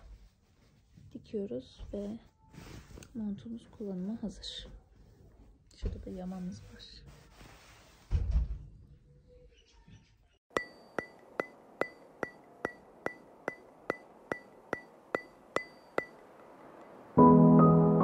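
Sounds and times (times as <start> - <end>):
piano background music: 10.6 - 18.0.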